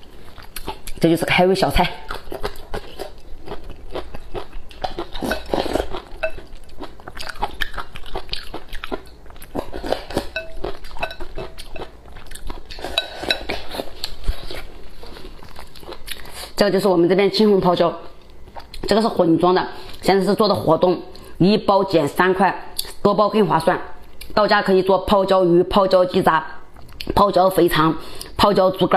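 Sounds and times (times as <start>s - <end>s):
person chewing: 0.0s - 1.0s, 2.0s - 16.6s, 18.2s - 18.9s.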